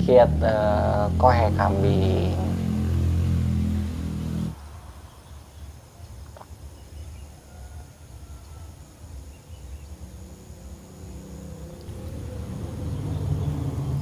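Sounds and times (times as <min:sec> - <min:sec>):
insect chirring: 0:04.6 - 0:14.0
low rumble: 0:11.0 - 0:14.0.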